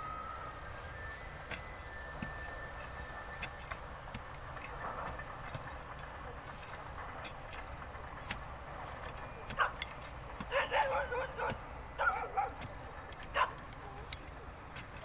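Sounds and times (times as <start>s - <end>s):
digging bar chopping into earth: 1.3s - 15.0s
dog barking and yelping: 9.5s - 9.9s, 10.5s - 12.7s, 13.3s - 14.1s.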